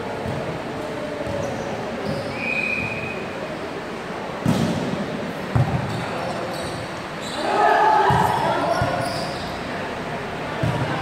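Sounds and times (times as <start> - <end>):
players' voices: 0.0 - 11.0.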